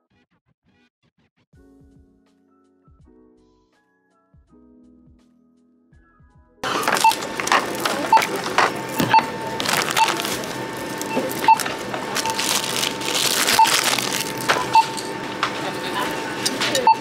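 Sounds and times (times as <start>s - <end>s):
barcode scanner beeping: 6.6s - 17.0s
packaging clattering and crackling: 6.6s - 17.0s.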